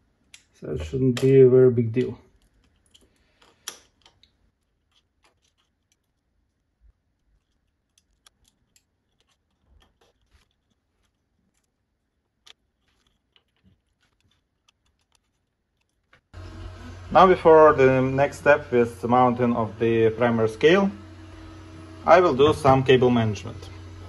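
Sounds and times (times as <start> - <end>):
small metal parts clicking: 2.0 - 16.3.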